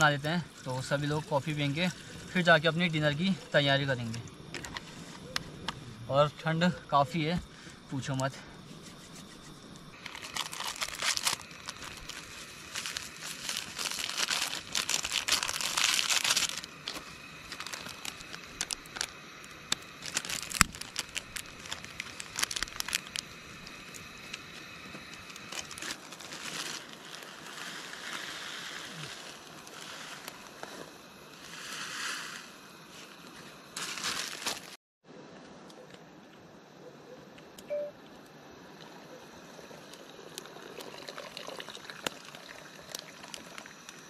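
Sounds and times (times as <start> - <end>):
sachets crinkling and tearing: 10.0 - 30.6, 33.8 - 34.8.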